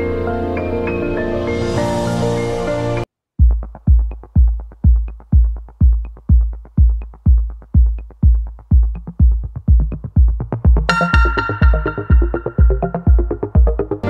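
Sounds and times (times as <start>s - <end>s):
electronic kick drum beat: 3.4s - 14.0s.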